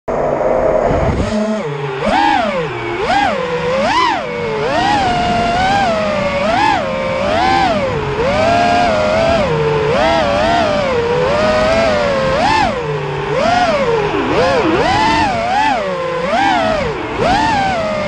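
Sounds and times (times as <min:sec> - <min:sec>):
drone motors whining: 0:00.1 - 0:18.0.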